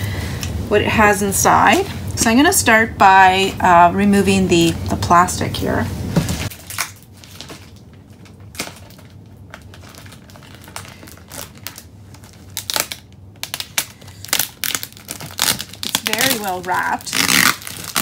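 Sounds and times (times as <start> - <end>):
plastic wrap crinkling: 6.2 - 18.0.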